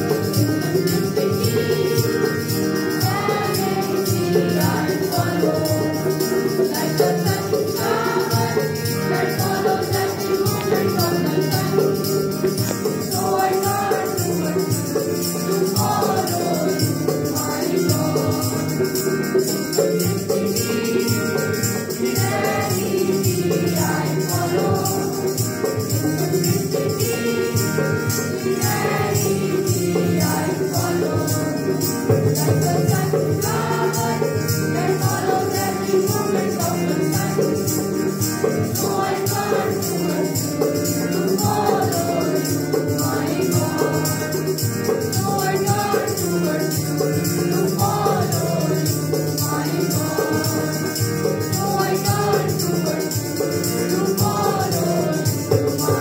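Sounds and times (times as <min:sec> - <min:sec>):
rhythmic percussion: 0:00.0 - 0:56.0
students singing together: 0:00.0 - 0:56.0.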